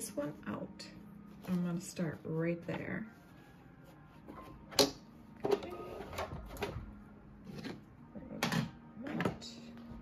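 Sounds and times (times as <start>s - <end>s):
hands handling rope and fabric: 3.0s - 4.8s.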